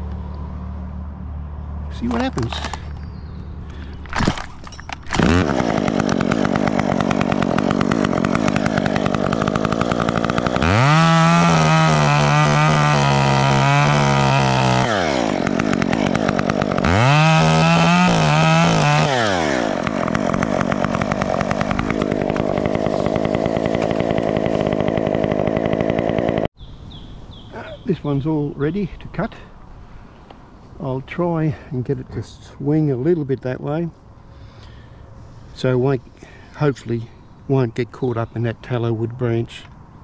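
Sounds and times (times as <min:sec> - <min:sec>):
chainsaw cutting branch: 0:02.0 - 0:03.0, 0:04.1 - 0:26.5.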